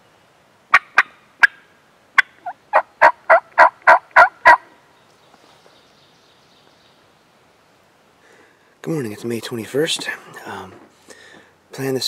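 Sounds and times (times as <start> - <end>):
turkey yelping: 2.2 - 4.6.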